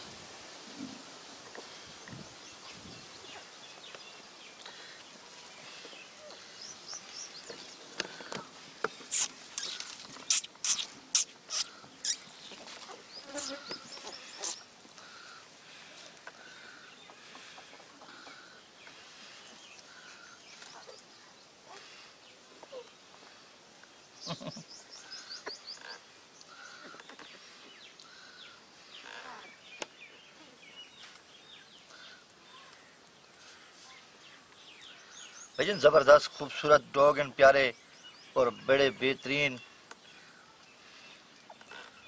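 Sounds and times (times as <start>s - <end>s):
puppies squeaking and whimpering: 9.1s - 12.3s.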